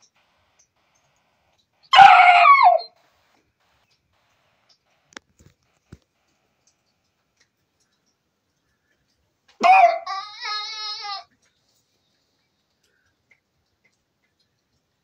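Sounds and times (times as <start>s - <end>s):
faint clicks: 0.0s - 1.9s, 3.0s - 9.6s, 11.2s - 15.0s
dog crying: 1.9s - 2.9s, 9.6s - 11.3s.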